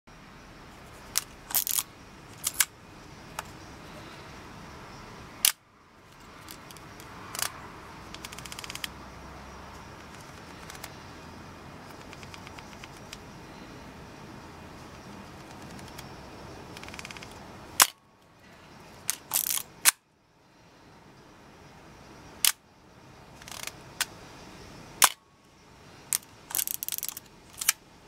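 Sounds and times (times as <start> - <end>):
small mechanical ticks: 1.0 - 2.7, 5.4 - 9.0, 9.7 - 11.0, 11.8 - 13.3, 14.9 - 18.0, 19.0 - 20.0, 22.4 - 22.6, 23.4 - 24.1, 26.1 - 27.8.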